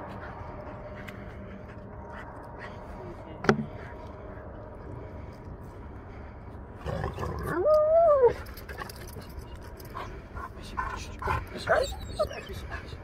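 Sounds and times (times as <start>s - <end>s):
dog whining: 11.5s - 13.0s.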